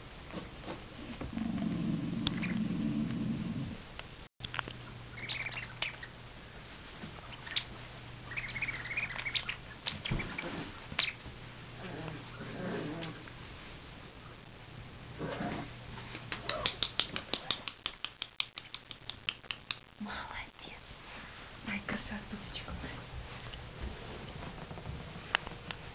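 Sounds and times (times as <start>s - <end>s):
puppy growling: 1.0s - 3.8s, 11.8s - 13.2s, 15.2s - 15.8s
puppies squeaking and yelping: 8.3s - 11.2s.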